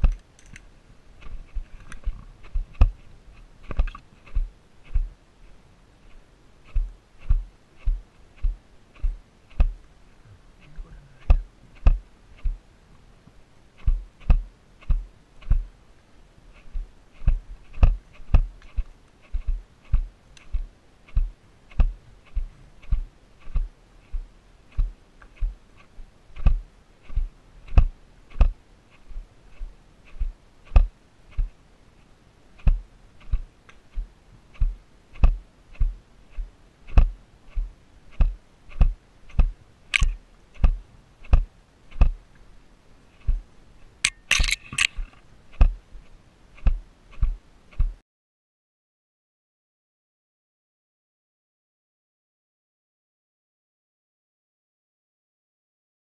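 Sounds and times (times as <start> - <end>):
camera clicking in loose mount: 39.3 - 40.8, 44.1 - 45.7.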